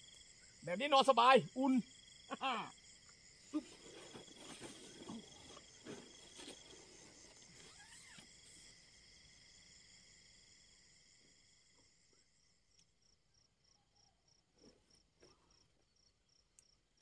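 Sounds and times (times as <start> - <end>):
crickets chirring: 0.0 - 17.0
soft rustling: 3.5 - 8.2.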